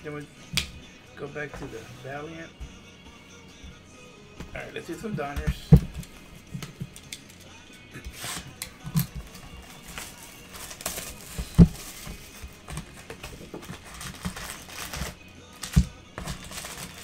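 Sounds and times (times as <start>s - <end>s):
dull thumps: 4.4s - 7.0s, 11.2s - 16.5s
cardboard and wrappers rustling: 8.1s - 17.0s.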